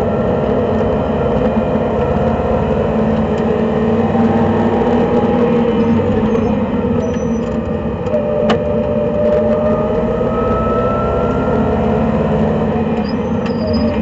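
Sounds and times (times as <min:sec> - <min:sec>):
racing car engine: 0:00.0 - 0:14.0
road noise inside car: 0:00.0 - 0:14.0.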